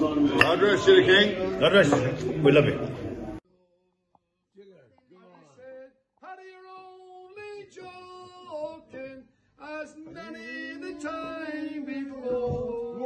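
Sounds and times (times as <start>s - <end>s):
person singing unaccompanied: 5.5s - 13.0s.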